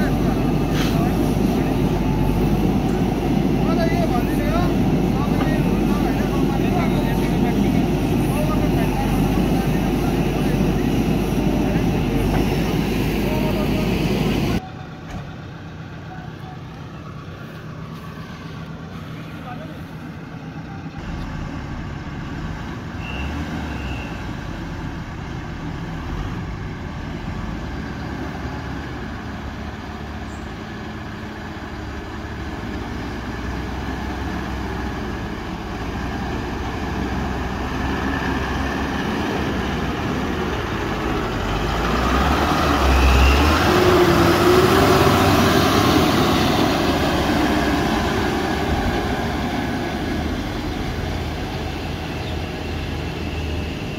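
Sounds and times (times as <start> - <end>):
diesel truck engine passing: 0.0 - 53.9.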